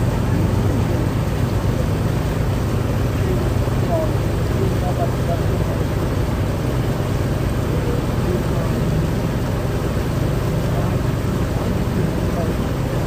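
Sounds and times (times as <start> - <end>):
boat motor humming: 0.0 - 13.0
wind and water noise: 0.0 - 13.0.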